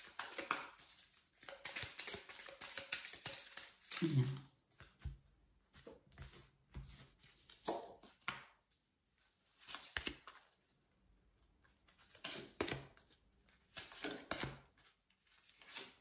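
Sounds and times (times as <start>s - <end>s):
cards being shuffled: 0.0s - 8.6s, 9.4s - 10.6s, 11.9s - 16.0s.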